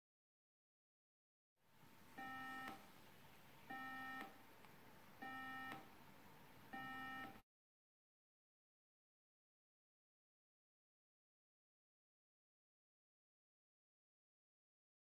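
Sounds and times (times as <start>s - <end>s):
low buzzy beeps: 2.2s - 2.8s, 3.7s - 4.4s, 5.2s - 5.9s, 6.7s - 7.4s.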